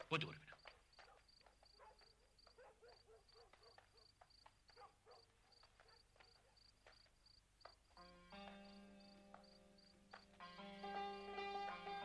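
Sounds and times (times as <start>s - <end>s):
cricket chirping: 0.5s - 10.2s.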